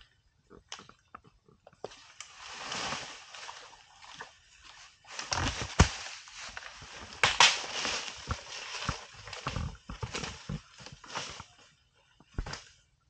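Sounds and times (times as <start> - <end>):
branches cracking and thudding: 1.9 - 4.3, 5.0 - 11.6, 12.2 - 12.7
leaves and branches rustling: 1.9 - 12.8.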